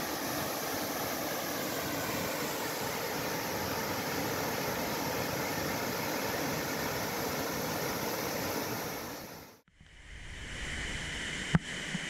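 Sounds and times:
waterfall rushing: 0.0s - 9.5s
low wash of water: 0.0s - 12.0s.

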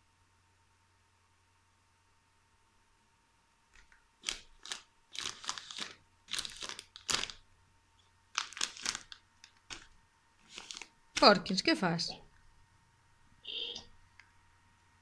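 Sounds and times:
plastic snack bag rustling: 3.8s - 7.5s, 8.3s - 11.6s.

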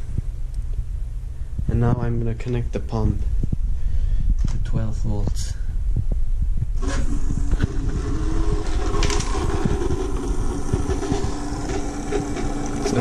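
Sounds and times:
water pump humming: 6.8s - 13.0s.

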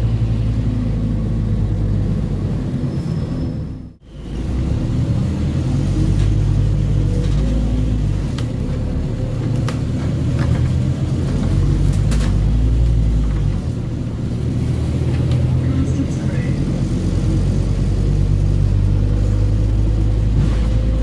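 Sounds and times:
bus diesel engine drone: 0.0s - 21.0s
bus body rattling: 5.3s - 21.0s.

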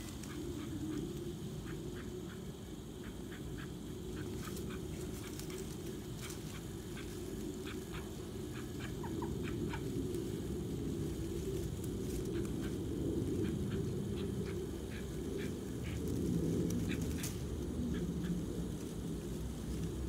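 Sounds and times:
duck quacking softly: 1.6s - 5.4s.

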